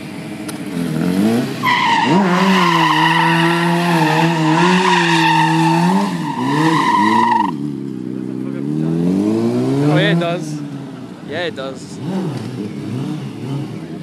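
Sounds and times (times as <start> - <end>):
motorcycle engine revving high: 0.7 - 10.5
tyre squealing: 1.6 - 7.6.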